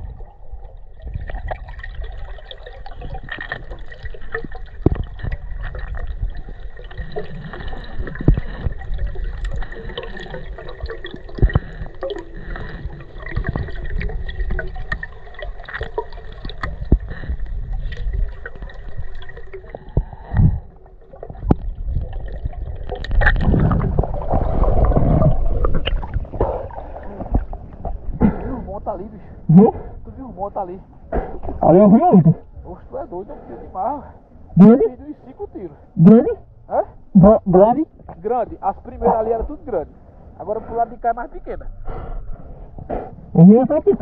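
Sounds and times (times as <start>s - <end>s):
clicks and knocks underwater: 0.0s - 28.6s
muffled underwater hiss: 2.4s - 21.6s.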